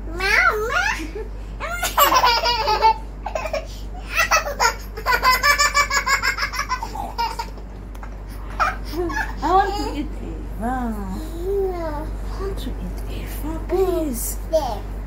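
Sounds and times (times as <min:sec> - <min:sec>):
toddler laughing: 0:00.2 - 0:10.0.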